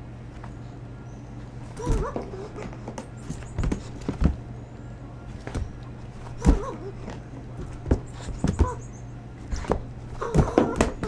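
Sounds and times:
steady low hum: 0.0 - 11.0
monkey high cries: 1.7 - 2.8, 6.4 - 7.1, 8.5 - 9.0, 10.1 - 11.0
knocks and thumps on wood: 1.7 - 4.4, 5.4 - 8.8, 9.5 - 11.0.

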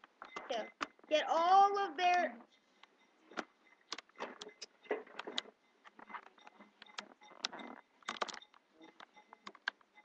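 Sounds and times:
handling clicks and knocks: 2.8 - 10.0.

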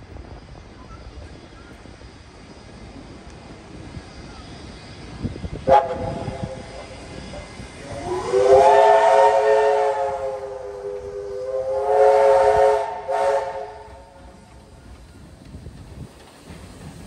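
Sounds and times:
steam hissing: 0.0 - 17.0
steam locomotive whistle blowing: 5.5 - 14.5.

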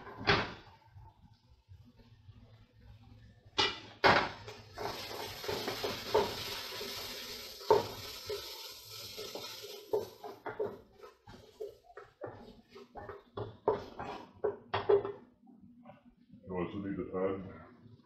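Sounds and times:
sizzling in pot: 0.0 - 13.8
wooden spoon stirring vegetables: 4.5 - 14.7.

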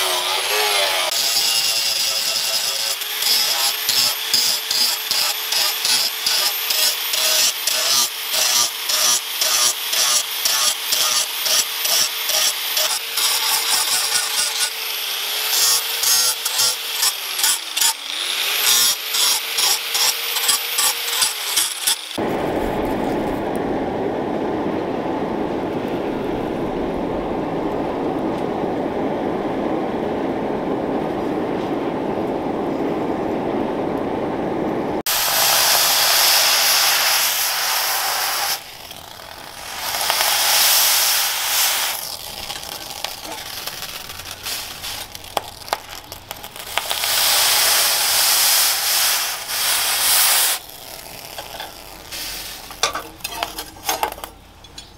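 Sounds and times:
angle grinder cutting steel: 0.0 - 22.2, 35.1 - 54.3
forge fire rushing: 22.2 - 54.2
hot blade hissing in water: 35.1 - 45.8, 46.5 - 52.8.

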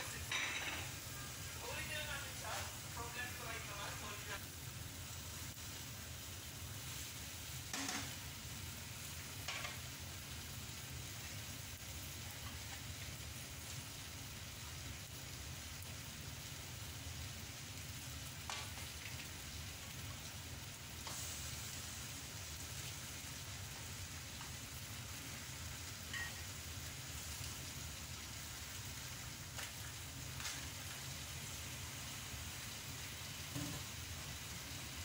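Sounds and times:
wok cooking hiss: 0.0 - 35.0
knocks and clinks in a wok: 0.2 - 1.0, 7.7 - 8.2, 9.4 - 9.8, 26.1 - 26.5.

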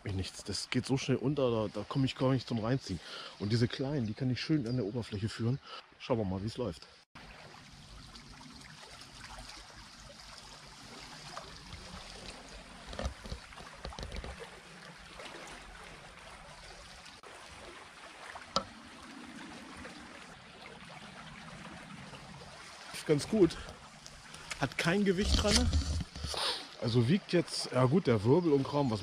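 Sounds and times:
stream flowing: 7.2 - 29.0.

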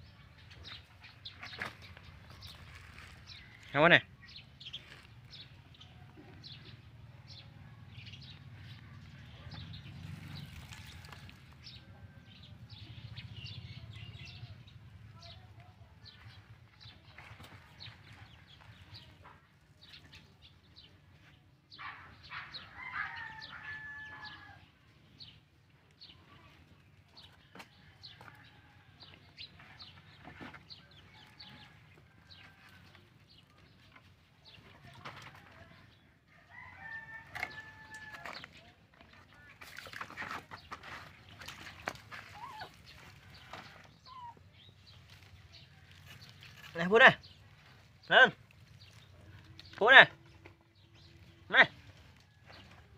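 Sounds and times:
rooster crowing: 22.7 - 24.6, 36.4 - 38.3
rustling: 39.5 - 49.8.

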